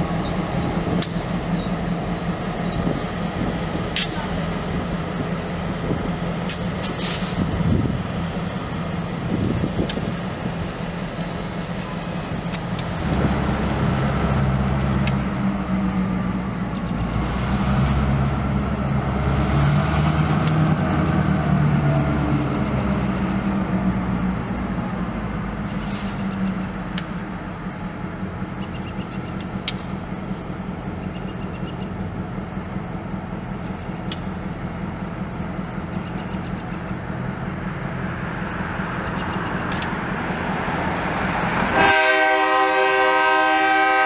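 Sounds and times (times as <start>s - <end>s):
locomotive engines droning: 0.0s - 44.0s
high squeals: 7.9s - 12.2s, 13.0s - 14.4s.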